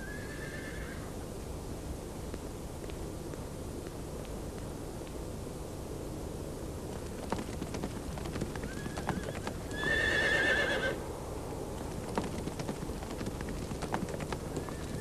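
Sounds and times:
horse whinnying: 0:00.0 - 0:01.0, 0:08.7 - 0:11.0
horse hooves clopping: 0:06.9 - 0:11.0, 0:11.7 - 0:15.0.

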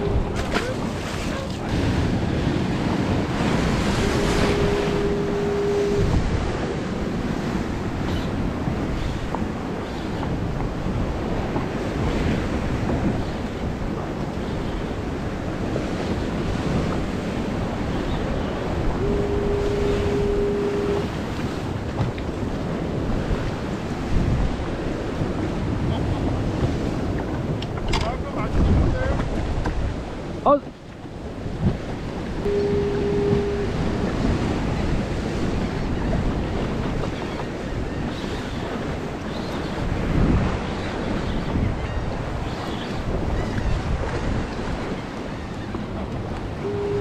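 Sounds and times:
surf breaking and foaming: 0:00.0 - 0:47.0
wind buffeting microphone: 0:00.0 - 0:47.0
steady tone: 0:03.8 - 0:06.6, 0:18.9 - 0:21.2, 0:32.4 - 0:34.1, 0:46.6 - 0:47.0.

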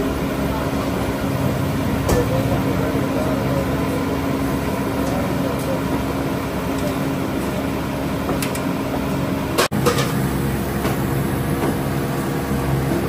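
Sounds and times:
busy food stall background noise: 0:00.0 - 0:13.0
machine hum: 0:00.0 - 0:13.0.

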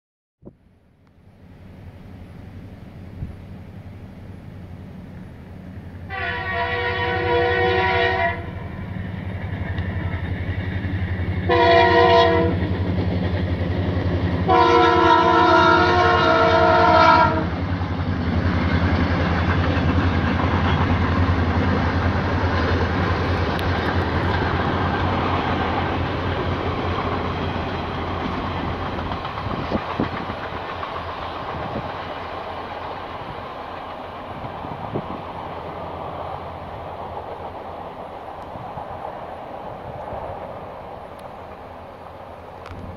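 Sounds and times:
train rumbling past: 0:00.5 - 0:42.9
train horn blasts: 0:06.1 - 0:08.8, 0:11.4 - 0:12.6, 0:14.5 - 0:17.6.

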